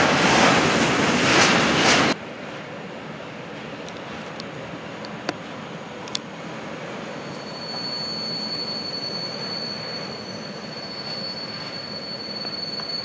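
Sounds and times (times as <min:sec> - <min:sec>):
train rumbling on track: 0:00.0 - 0:13.0
high-pitched squeal of rails and wheels: 0:06.4 - 0:13.0.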